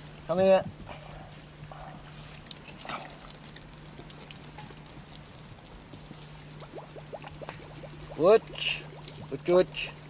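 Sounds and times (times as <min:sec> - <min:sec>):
muddy water dribbling: 0:01.7 - 0:10.0
water slosh: 0:02.2 - 0:10.0.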